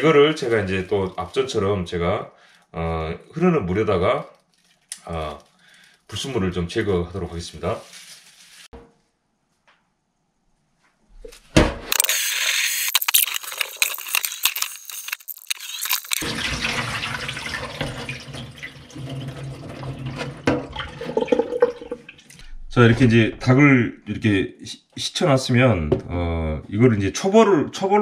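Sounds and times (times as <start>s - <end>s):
water poured into sink: 15.3s - 22.5s
tap water splashing into pan: 16.2s - 22.4s.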